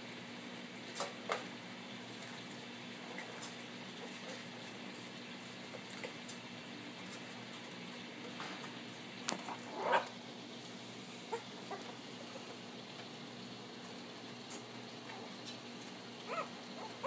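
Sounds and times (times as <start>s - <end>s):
puppy squealing: 9.7s - 10.1s, 11.3s - 11.9s, 16.3s - 17.0s
faint puppy yips: 16.3s - 17.0s.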